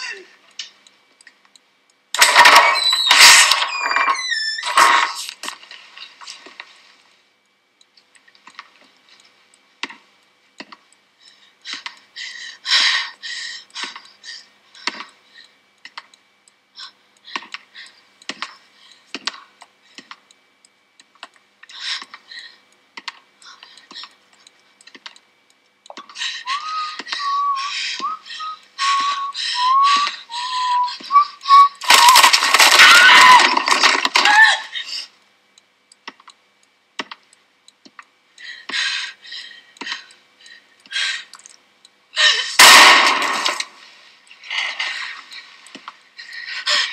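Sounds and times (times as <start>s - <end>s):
sharp clicks and taps: 10.6s - 10.9s, 23.0s - 26.2s, 35.9s - 36.4s, 37.0s - 38.1s.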